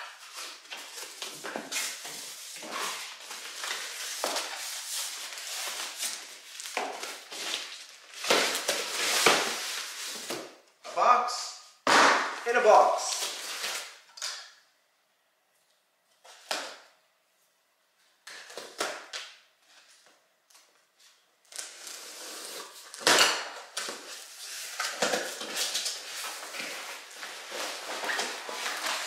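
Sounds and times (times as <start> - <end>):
cardboard and packaging rustling: 0.0 - 10.7, 13.1 - 14.3, 18.3 - 29.0
knife scraping packing tape: 21.5 - 23.1.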